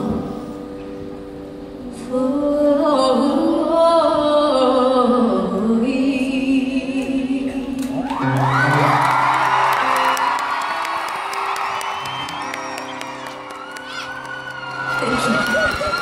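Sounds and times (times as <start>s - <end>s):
woman singing: 1.8s - 8.0s.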